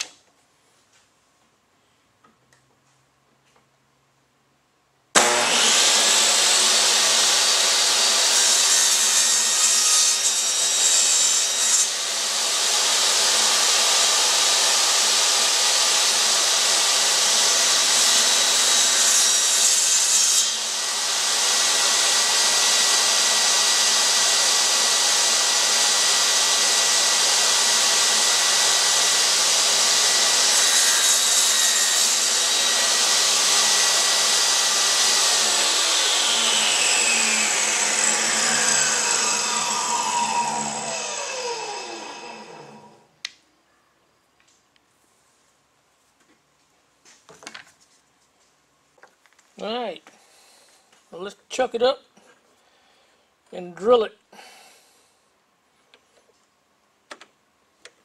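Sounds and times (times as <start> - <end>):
table saw cutting wood: 5.2 - 43.1.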